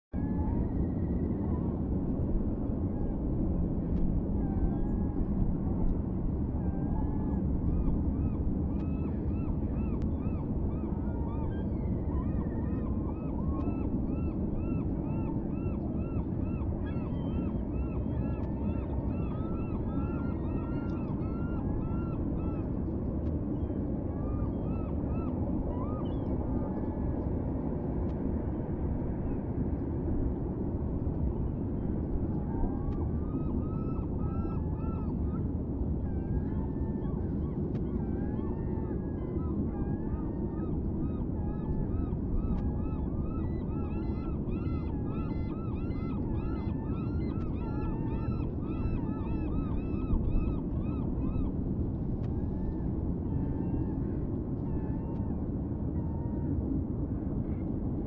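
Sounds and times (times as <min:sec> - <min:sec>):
steady low rumble: 0:44.2 - 0:58.0.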